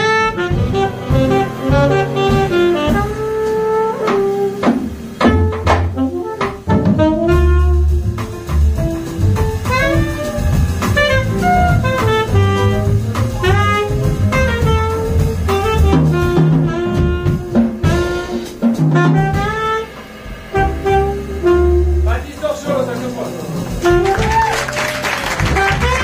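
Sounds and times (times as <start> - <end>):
saxophone melody: 0.0 - 8.3, 8.9 - 22.2, 23.7 - 26.0
low bass line: 0.0 - 24.5.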